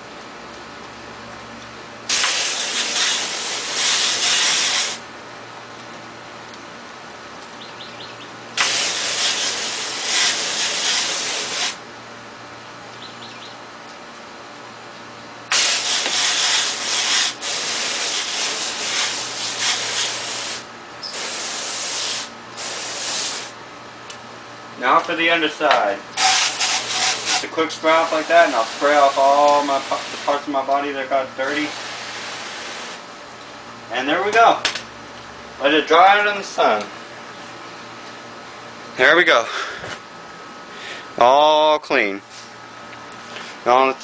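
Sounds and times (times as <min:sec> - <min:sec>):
hose spray hissing: 0:02.1 - 0:05.0, 0:08.6 - 0:11.8, 0:15.5 - 0:23.6, 0:26.2 - 0:30.5, 0:31.4 - 0:33.0.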